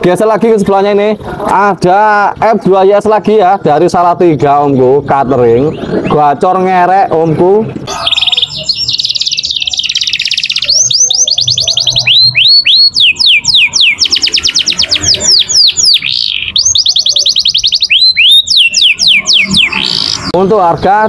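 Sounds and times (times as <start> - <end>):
canary singing: 4.5 - 21.0.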